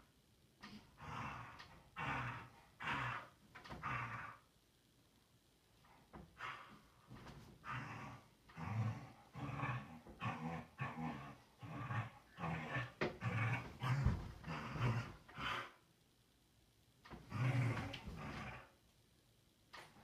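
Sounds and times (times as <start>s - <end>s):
dog growling: 0.7s - 4.5s, 7.6s - 15.8s, 17.1s - 18.8s.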